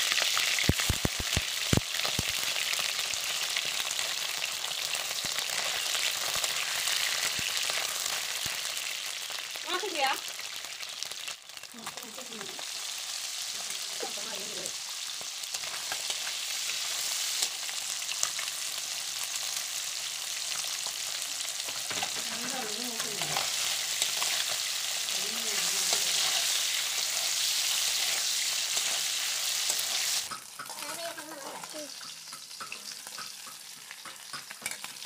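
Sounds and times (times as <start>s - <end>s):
fish sizzling in hot oil: 0.0s - 35.0s
steel spatula stirring in wok: 25.8s - 35.0s.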